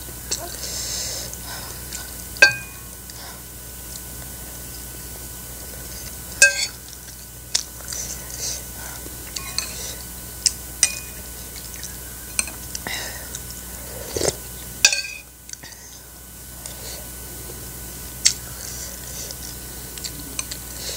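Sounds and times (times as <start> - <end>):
metal spoon clinking on ceramic bowl: 2.4 - 2.8, 6.4 - 6.8, 14.9 - 15.2
soft chewing: 15.4 - 20.9.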